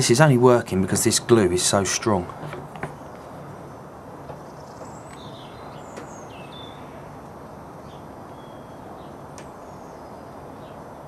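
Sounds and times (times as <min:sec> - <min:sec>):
faint bird chirps: 0:07.8 - 0:10.9.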